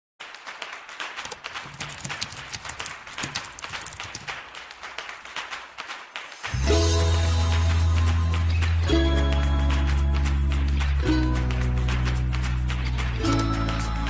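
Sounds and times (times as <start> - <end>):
keyboard typing: 1.2 - 4.4
music: 6.4 - 14.0.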